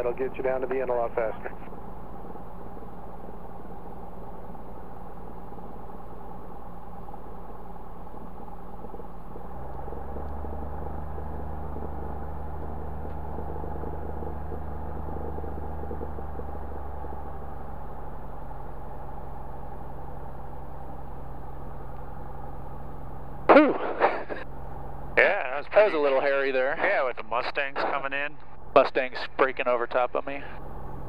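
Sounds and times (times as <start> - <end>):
light aircraft piston engine running: 0.0 - 31.0.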